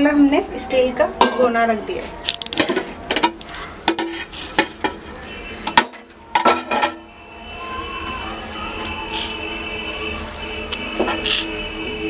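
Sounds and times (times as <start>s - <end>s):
metal pots clanking: 1.2s - 1.6s, 2.5s - 7.1s.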